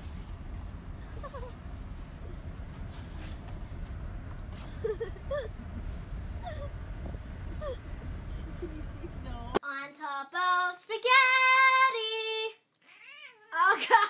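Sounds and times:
moving car rumble: 0:00.0 - 0:09.6
dog whining and yipping: 0:01.0 - 0:02.8, 0:04.0 - 0:09.4.

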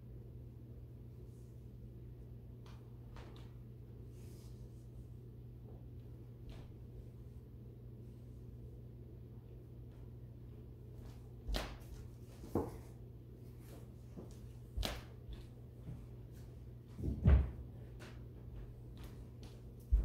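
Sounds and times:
steady low hum: 0:00.0 - 0:20.0
furniture knocks and thumps: 0:16.9 - 0:17.7.

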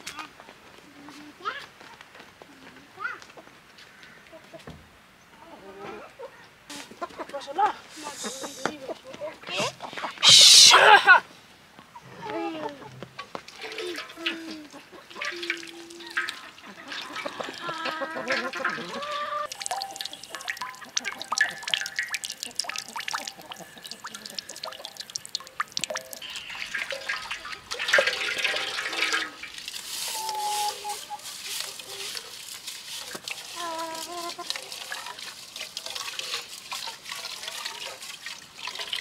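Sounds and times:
water splashing and trickling: 0:12.6 - 0:39.0.

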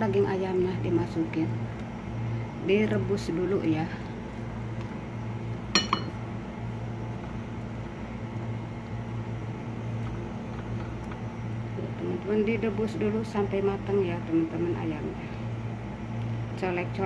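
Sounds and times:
steady low hum: 0:00.0 - 0:17.0
metallic clink on cooking pot: 0:05.8 - 0:06.2.

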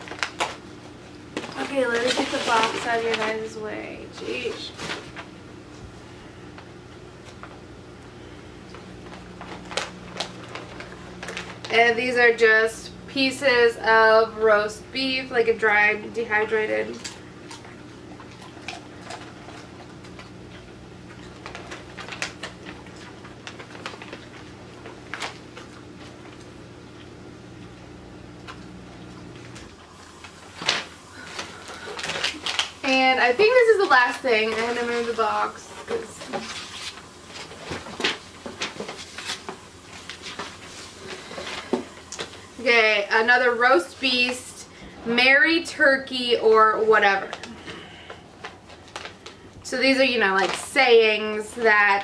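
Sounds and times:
plastic bag crinkling: 0:00.0 - 0:05.3, 0:08.7 - 0:12.4, 0:16.0 - 0:26.6, 0:29.4 - 0:44.5, 0:46.8 - 0:52.0
dishwasher humming: 0:00.0 - 0:52.0.

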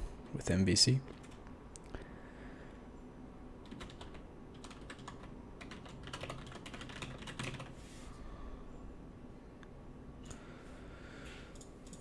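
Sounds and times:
typing on computer keyboard: 0:03.6 - 0:07.7, 0:11.5 - 0:12.0.

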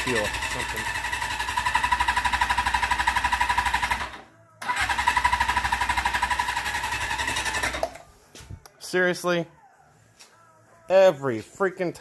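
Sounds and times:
motorcycle starter cranking engine: 0:00.0 - 0:08.0.

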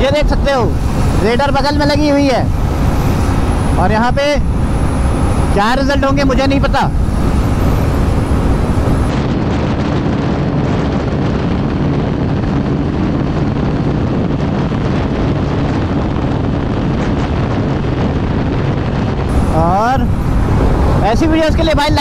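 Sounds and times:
motorcycle engine drone: 0:00.0 - 0:22.0
wind buffeting microphone: 0:00.0 - 0:22.0.

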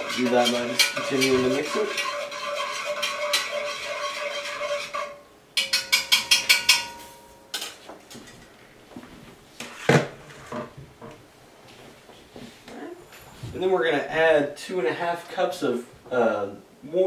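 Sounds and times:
spoon scraping in metal pot: 0:00.0 - 0:07.8
ringing taps on pot: 0:05.6 - 0:07.1.

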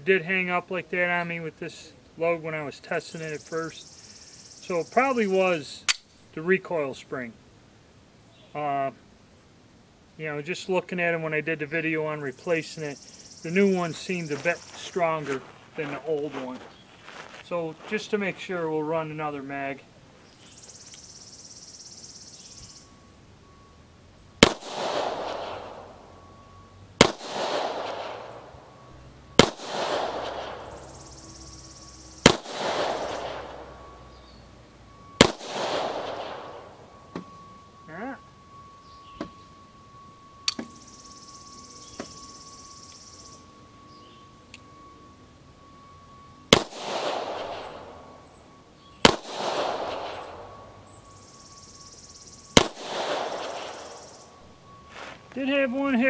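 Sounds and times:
pistol shots with echo: 0:24.4 - 0:26.0, 0:27.0 - 0:31.0, 0:32.2 - 0:33.9, 0:35.0 - 0:37.0, 0:46.5 - 0:48.2, 0:49.0 - 0:50.7, 0:52.5 - 0:54.8.

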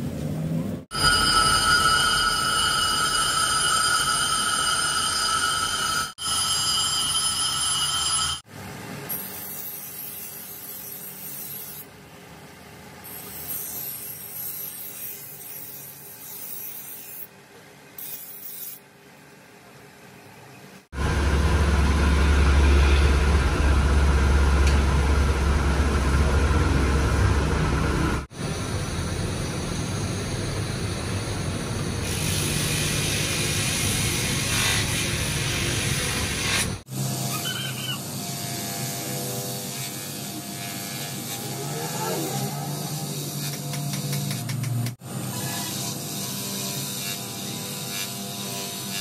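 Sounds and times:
low rumbling power tool: 0:00.8 - 0:12.0, 0:21.0 - 0:49.0
machine whine: 0:00.9 - 0:08.5, 0:21.0 - 0:44.4.

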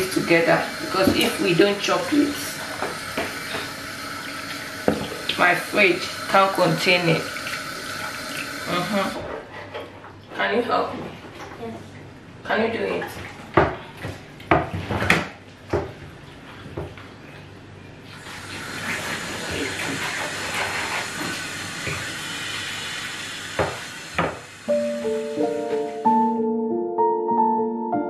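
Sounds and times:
soft piano music: 0:24.7 - 0:28.0.

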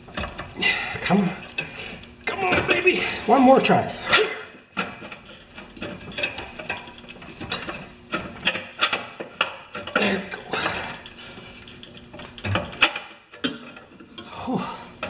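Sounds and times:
metallic clicks and scrapes: 0:03.9 - 0:14.3.

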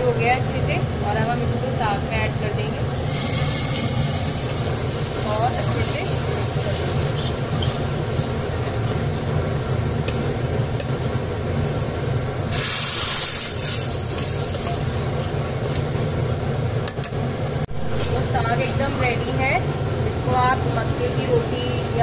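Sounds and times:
steady low hum: 0:00.0 - 0:22.0
hot oil sizzling: 0:01.8 - 0:11.2, 0:12.4 - 0:16.1
ladle stirring in pot: 0:02.9 - 0:11.2, 0:12.5 - 0:16.5.

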